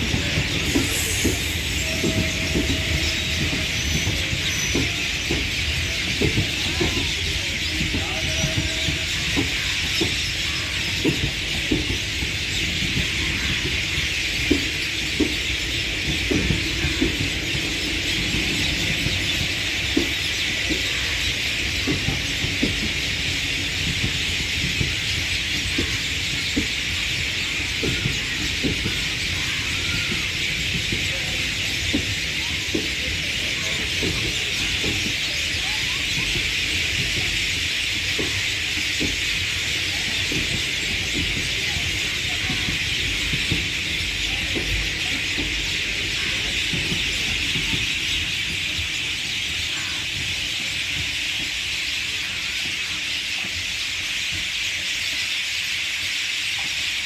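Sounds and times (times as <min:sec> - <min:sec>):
low train rumble: 0:00.0 - 0:57.0
train wheels clacking on rail joints: 0:00.0 - 0:57.0
high-pitched wheel squeal: 0:00.3 - 0:05.4.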